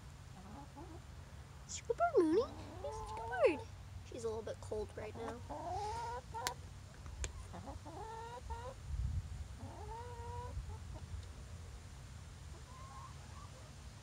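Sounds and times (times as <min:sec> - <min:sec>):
hens calling: 0:02.1 - 0:03.7, 0:04.9 - 0:08.8, 0:09.6 - 0:11.1, 0:12.5 - 0:13.7.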